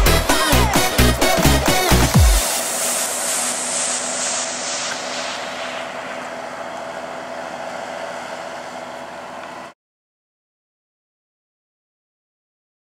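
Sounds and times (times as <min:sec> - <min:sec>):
tractor engine under load: 0:00.0 - 0:09.7.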